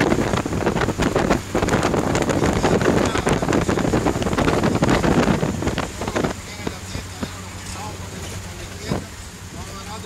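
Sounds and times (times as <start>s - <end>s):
car engine: 0.0s - 10.0s
road noise: 0.0s - 10.0s
wind through car window: 0.0s - 10.0s.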